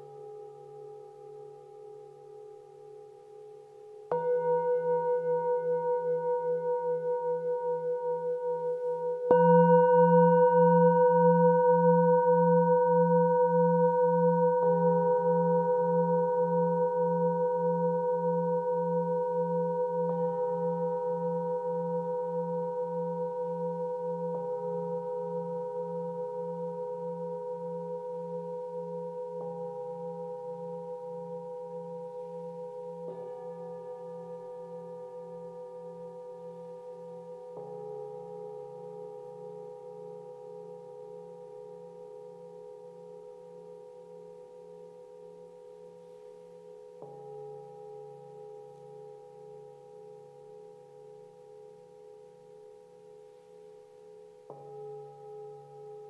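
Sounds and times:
singing bowls struck with mallet: 4.0s - 45.5s.

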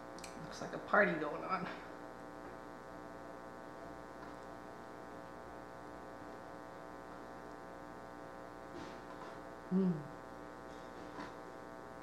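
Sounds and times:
buzzy electrical hum: 0.0s - 12.0s.

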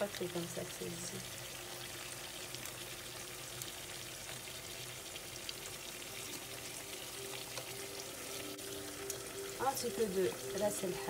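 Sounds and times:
sauce hissing in a pot: 0.0s - 11.0s.

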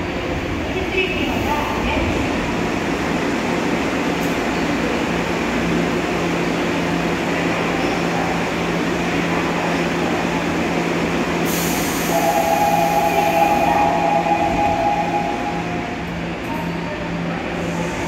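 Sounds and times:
hiss: 11.4s - 12.1s
train equipment humming: 11.4s - 18.0s
two-tone door warning: 12.1s - 15.9s.

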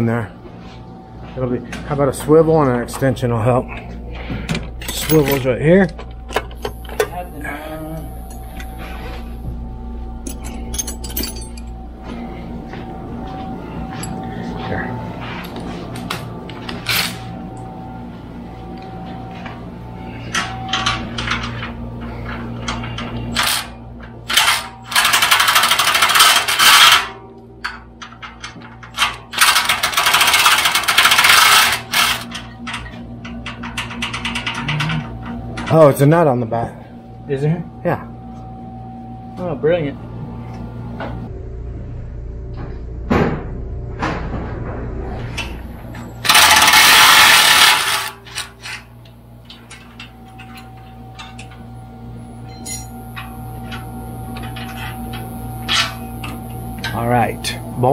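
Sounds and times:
cordless driver spinning: 46.2s - 48.2s.

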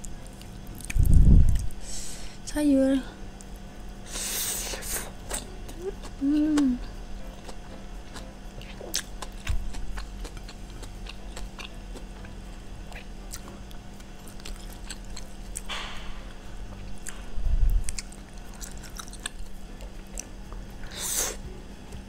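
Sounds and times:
person chewing food: 4.7s - 21.4s.

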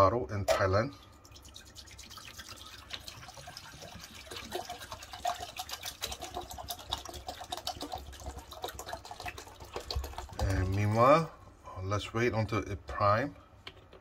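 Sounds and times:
water pouring into glass pot: 0.7s - 11.3s.

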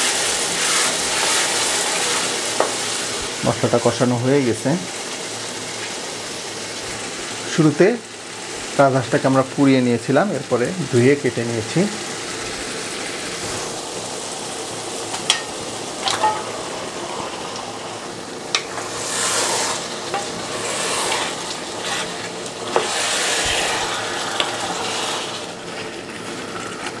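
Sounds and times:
meat sizzling in spice paste: 0.0s - 27.0s
wooden spatula stirring: 0.4s - 2.8s, 15.2s - 27.0s.

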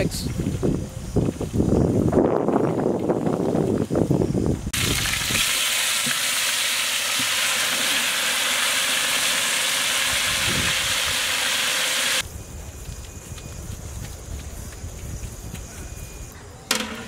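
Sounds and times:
meat sizzling in hot oil: 4.8s - 12.2s.

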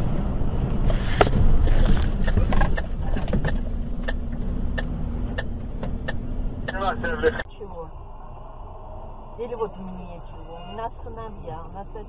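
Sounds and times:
truck cab road rumble: 0.0s - 7.5s.

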